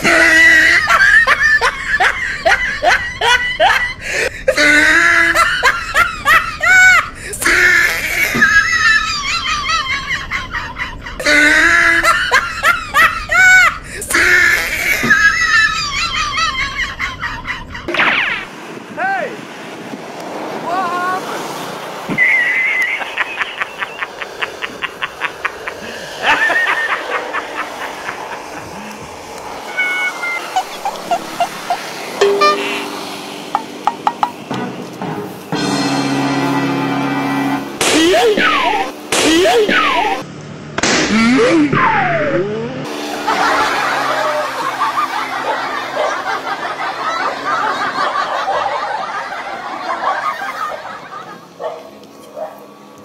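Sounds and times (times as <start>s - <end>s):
person laughing in short bursts: 22.2s - 28.9s.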